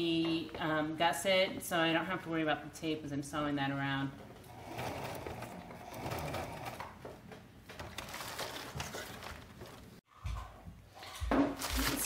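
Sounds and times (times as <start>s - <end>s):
fabric crinkly rustle: 7.8s - 10.0s.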